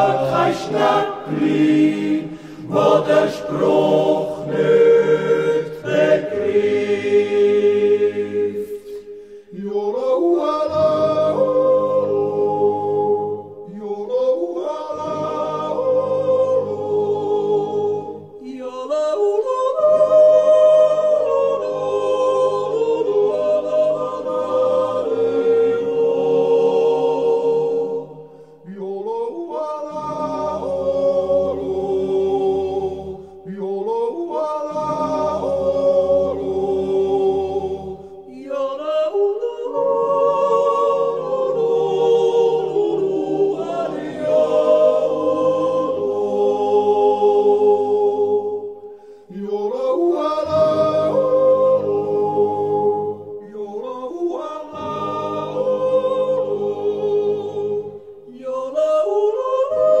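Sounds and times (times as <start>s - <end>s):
choir yodeling: 0.0s - 60.0s.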